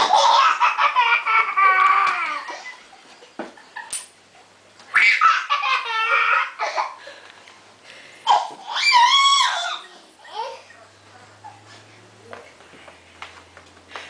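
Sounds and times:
toddler laughing: 0:00.0 - 0:03.1, 0:04.9 - 0:07.0, 0:08.3 - 0:10.8
toddler squealing: 0:08.3 - 0:10.8.

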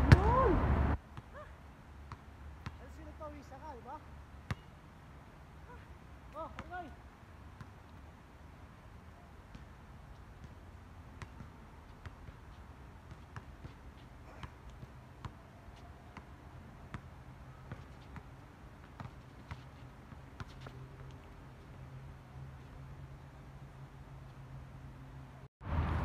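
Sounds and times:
distant basketball bouncing: 0:01.1 - 0:03.5, 0:04.4 - 0:04.8, 0:05.7 - 0:07.0, 0:10.4 - 0:21.4.

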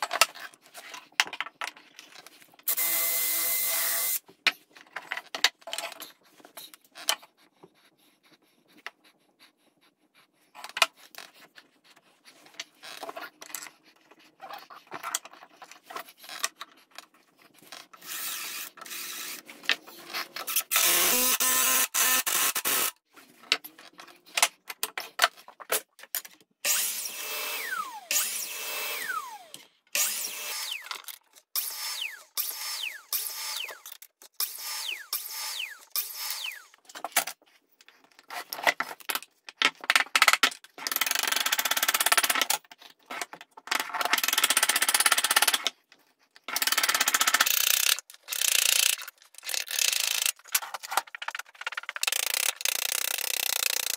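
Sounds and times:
cordless drill driving screws: 0:18.0 - 0:19.4, 0:20.5 - 0:22.9, 0:26.7 - 0:30.9.

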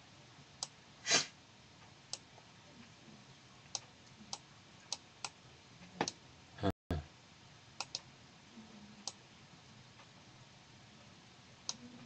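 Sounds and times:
computer mouse clicking: 0:07.8 - 0:08.1.

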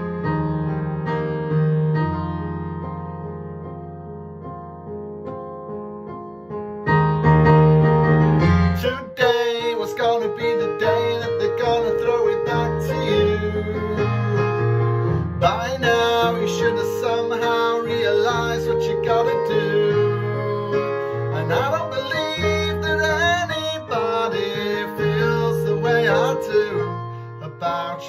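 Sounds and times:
piano-led pop backing track: 0:00.0 - 0:28.0
man singing: 0:08.6 - 0:28.0.

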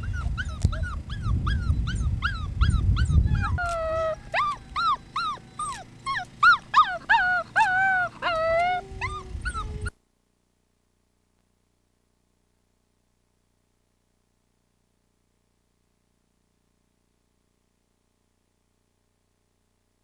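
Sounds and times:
wolf pup yipping and howling: 0:00.0 - 0:10.0.

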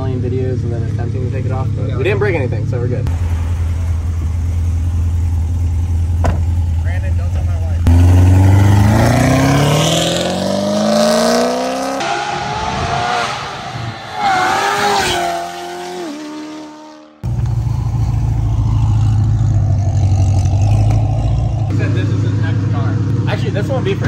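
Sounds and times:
low engine rumble: 0:00.0 - 0:09.0, 0:17.2 - 0:24.0
sports car engine accelerating: 0:03.0 - 0:24.0
engine revs rising and falling: 0:07.8 - 0:24.0.

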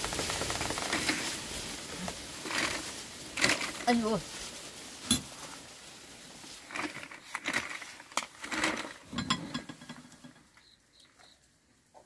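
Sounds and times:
things being handled clicking: 0:02.4 - 0:03.9, 0:06.7 - 0:10.7.

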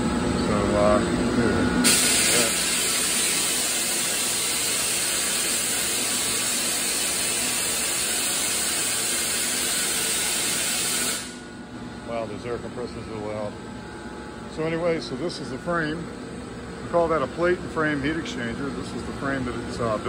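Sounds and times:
air compressor hissing: 0:01.8 - 0:11.6.

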